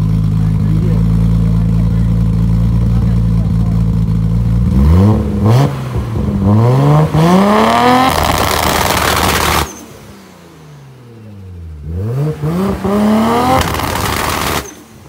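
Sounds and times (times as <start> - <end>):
car engine revving: 0.0 - 15.0.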